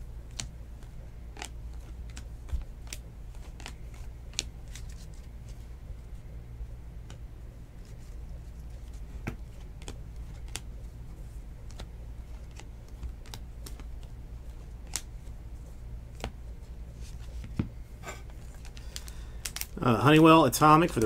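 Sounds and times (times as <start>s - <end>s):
low hum: 0.0s - 21.0s
cards flipping and clicking: 0.3s - 5.6s, 7.0s - 10.7s, 11.6s - 15.3s, 20.8s - 21.0s.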